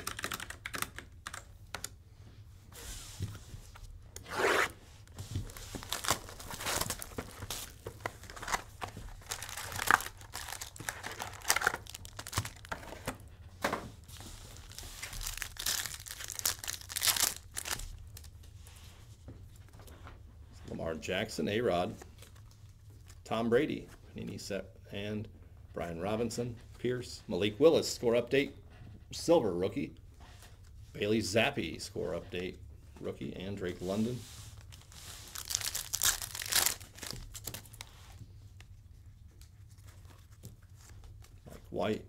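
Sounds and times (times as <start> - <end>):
foil wrappers tearing and crinkling: 5.4 - 12.9, 14.2 - 18.3, 34.7 - 37.9.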